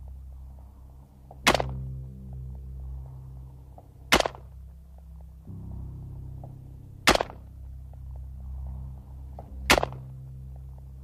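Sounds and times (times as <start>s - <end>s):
low synthesizer drone: 0.0s - 11.0s
rifle shots with ringing tail: 4.1s - 4.5s.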